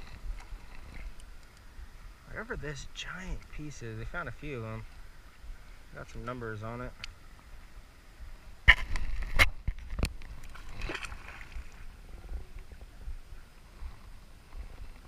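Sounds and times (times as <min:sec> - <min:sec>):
water splashing and sloshing: 0:00.0 - 0:02.2, 0:07.0 - 0:13.0.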